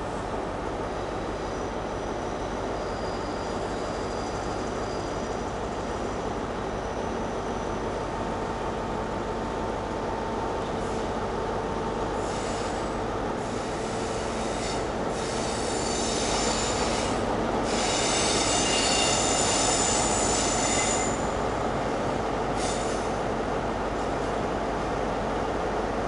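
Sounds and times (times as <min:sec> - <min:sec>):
train wheels squealing on rails: 0:00.8 - 0:08.4, 0:12.2 - 0:21.6, 0:22.5 - 0:23.3.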